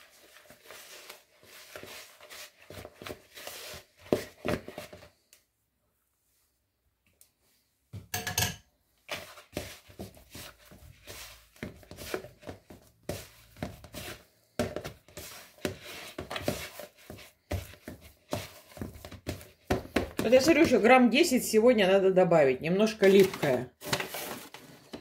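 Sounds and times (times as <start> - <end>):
dough slapping in metal bowl: 9.1 - 20.9.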